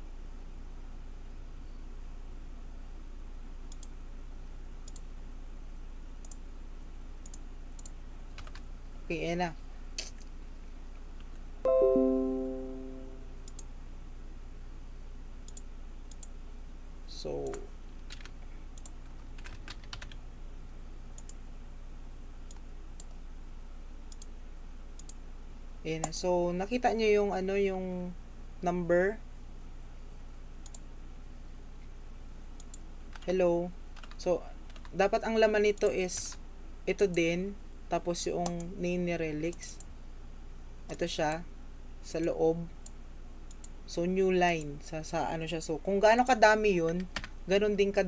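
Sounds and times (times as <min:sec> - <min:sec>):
low electrical hum and hiss: 0:00.0 - 0:48.0
computer mouse clicking: 0:03.7 - 0:04.0, 0:04.8 - 0:05.1, 0:06.2 - 0:06.4, 0:07.2 - 0:08.7, 0:13.4 - 0:13.7, 0:15.4 - 0:16.3, 0:17.4 - 0:20.2, 0:21.1 - 0:21.4, 0:22.5 - 0:23.2, 0:24.1 - 0:24.3, 0:25.0 - 0:25.2, 0:30.6 - 0:30.9, 0:32.6 - 0:33.3, 0:42.8 - 0:43.8
keyboard typing: 0:07.3 - 0:08.6, 0:17.4 - 0:20.2, 0:34.0 - 0:34.9
low hum: 0:11.7 - 0:13.6.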